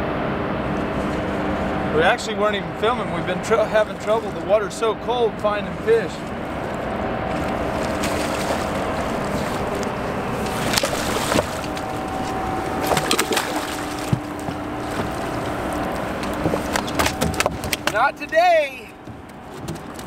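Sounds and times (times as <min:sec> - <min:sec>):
faint steady hum: 0:00.0 - 0:20.0
water wash: 0:00.7 - 0:20.0
fish splashing at surface: 0:06.3 - 0:18.0.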